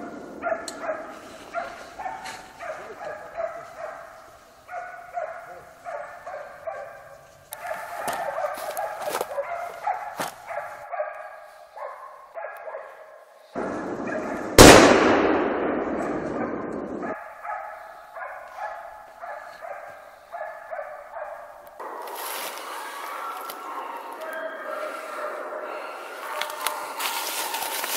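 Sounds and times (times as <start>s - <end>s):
hunting dogs baying: 0.0s - 14.6s, 16.4s - 27.9s
rifle shot echoing: 13.6s - 17.2s.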